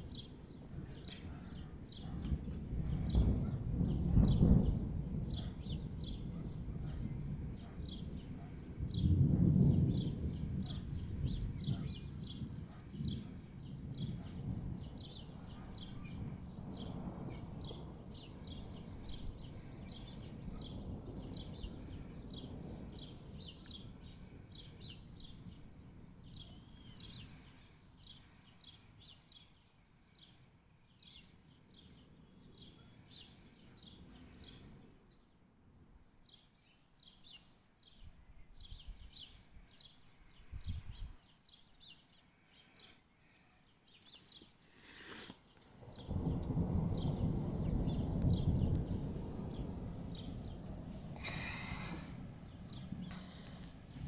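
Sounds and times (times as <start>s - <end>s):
distant thunder rumbling: 0.0s - 27.6s, 45.7s - 54.0s.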